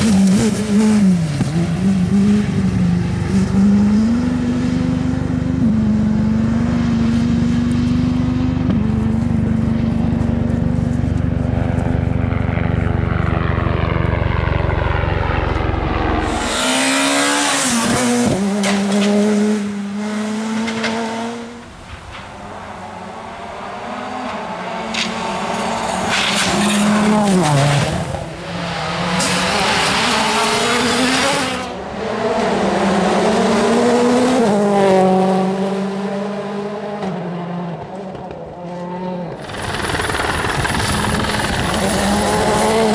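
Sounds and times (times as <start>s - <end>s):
engine low rumble: 1.6s - 16.5s
car passing loudly: 15.7s - 39.6s
rally car engine changing gear: 39.3s - 42.9s.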